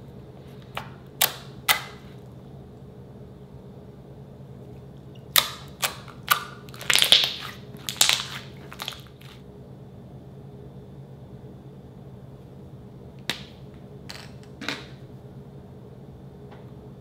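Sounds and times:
slime popping and crackling: 5.3 - 9.4.

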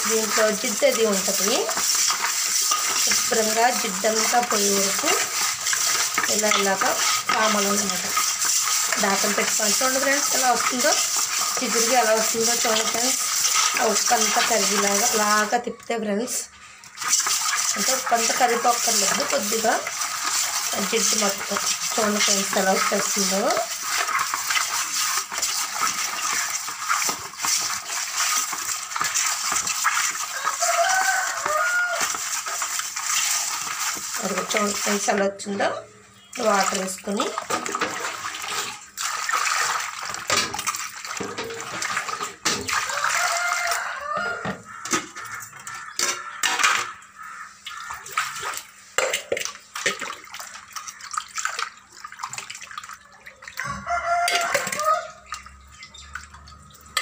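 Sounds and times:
water poured splash: 0.0 - 15.2, 16.9 - 35.2, 36.4 - 43.8, 47.6 - 57.0
hands scrubbing fish in bowl: 0.0 - 15.6, 16.8 - 35.4, 36.4 - 44.0, 44.7 - 57.0.

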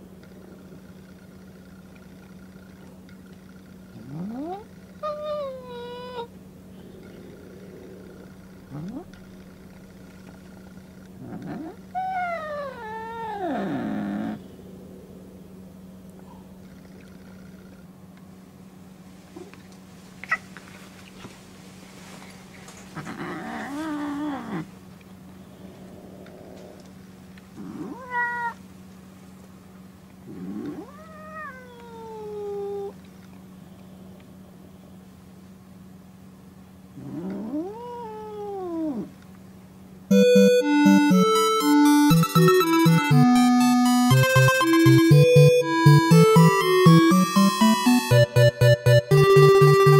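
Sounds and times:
cat yowling: 4.4 - 6.3, 11.4 - 14.4, 27.6 - 28.6, 30.6 - 33.0, 37.1 - 39.1
cat meowing: 27.6 - 28.6, 30.6 - 32.9.

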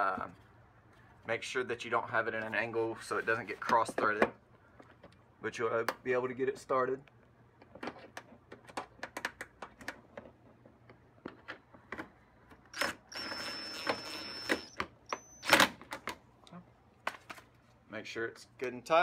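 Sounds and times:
power drill whining: 12.7 - 15.7.

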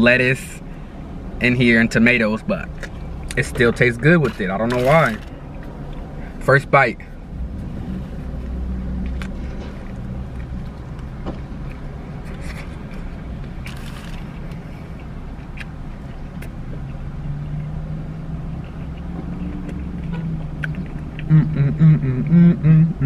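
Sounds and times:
man speaking: 3.3 - 5.2, 6.4 - 7.1
man chewing: 7.1 - 22.8.

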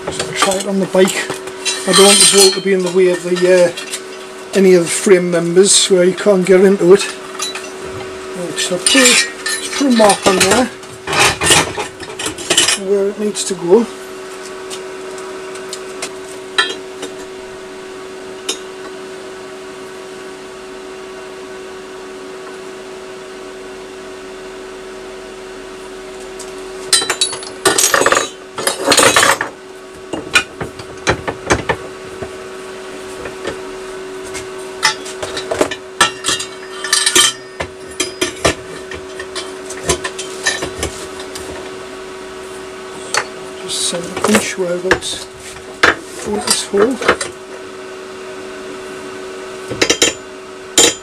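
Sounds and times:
steady hum: 0.0 - 51.0
metal tools clinking: 0.2 - 4.2, 7.3 - 7.8, 8.6 - 12.9, 26.9 - 29.4, 34.8 - 40.8.

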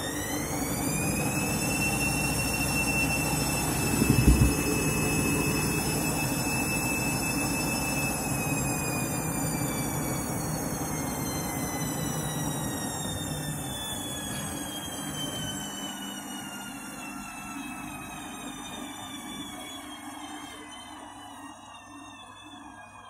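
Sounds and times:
washing machine motor whine: 0.0 - 23.0
washing machine drum thud: 3.8 - 5.9.

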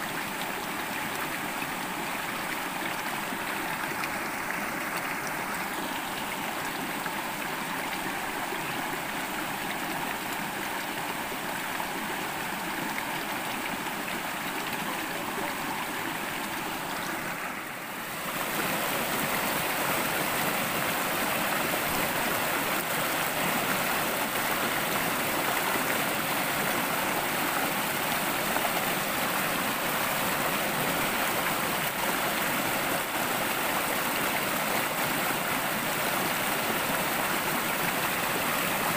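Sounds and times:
river rushing over stones: 0.0 - 38.9.

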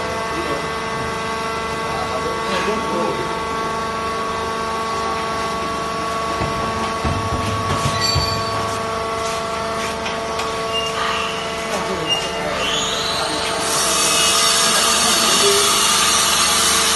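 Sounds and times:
dull low knocks: 6.4 - 9.0.

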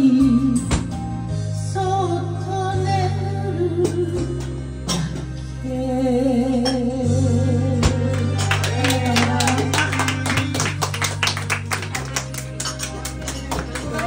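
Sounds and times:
woman singing into a microphone: 0.0 - 1.0, 1.6 - 10.2
karaoke backing track: 0.0 - 14.0
listeners clapping along: 8.0 - 14.0.

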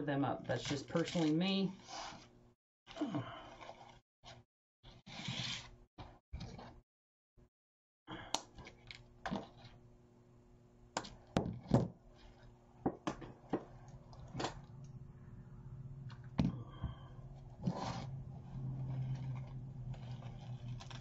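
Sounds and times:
faint low hum: 13.7 - 21.0.

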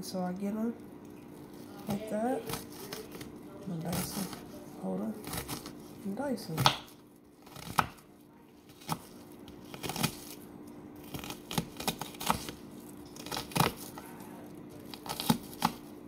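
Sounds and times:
knife cutting onion: 1.8 - 8.0, 8.7 - 10.4, 11.0 - 14.2, 14.8 - 15.9.

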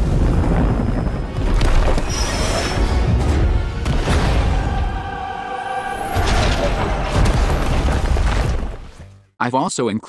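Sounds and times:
sustained choir-like chord: 4.0 - 7.3.

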